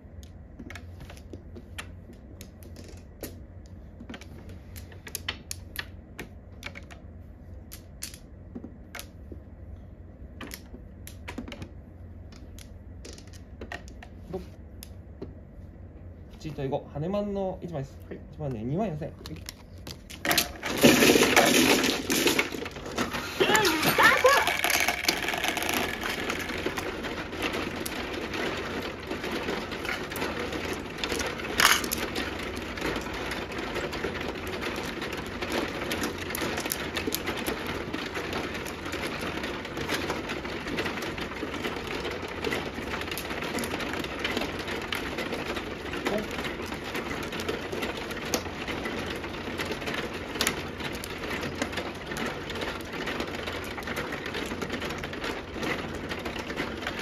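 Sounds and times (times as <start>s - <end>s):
mahjong tiles clicking: 23.5s - 33.2s.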